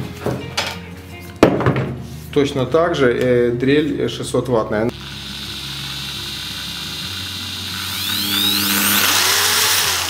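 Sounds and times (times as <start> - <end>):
impact drill motor whining: 4.9 - 10.0.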